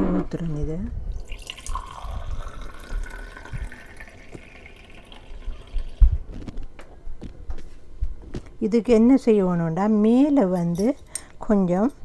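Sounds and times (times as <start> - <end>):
liquid pouring into a glass: 1.1 - 6.0.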